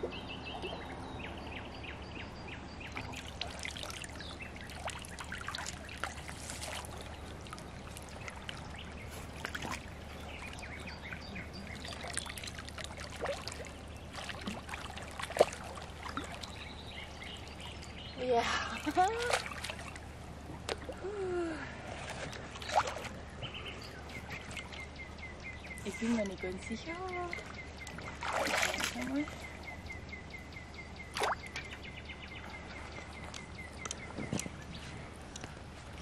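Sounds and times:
shallow water splashing: 0:02.9 - 0:25.0, 0:26.8 - 0:29.6, 0:31.0 - 0:31.8.

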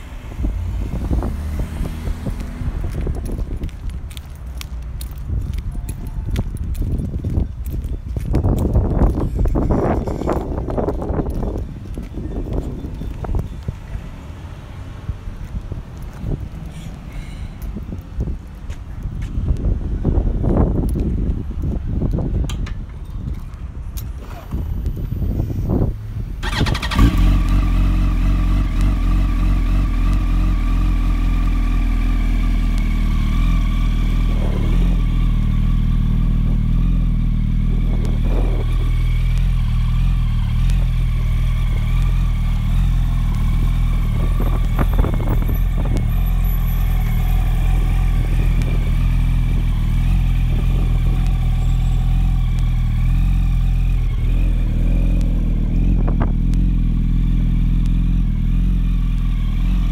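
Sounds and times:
motorcycle engine starting and idling: 0:24.0 - 0:25.6, 0:26.2 - 0:59.9.

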